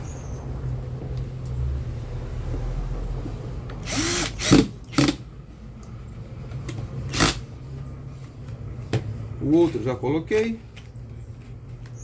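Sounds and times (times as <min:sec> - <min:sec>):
cordless drill motor whirring: 0:03.8 - 0:05.2.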